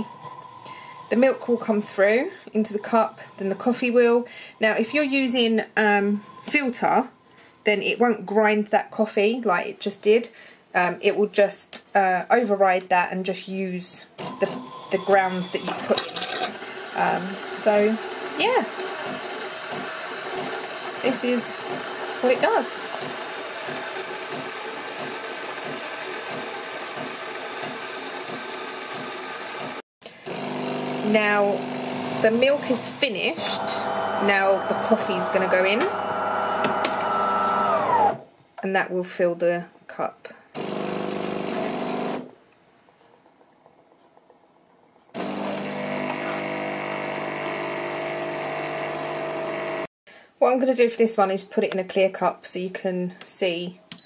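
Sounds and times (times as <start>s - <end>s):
coffee machine frothing milk: 0.0s - 4.2s, 14.2s - 38.2s, 40.6s - 42.3s, 45.2s - 49.9s.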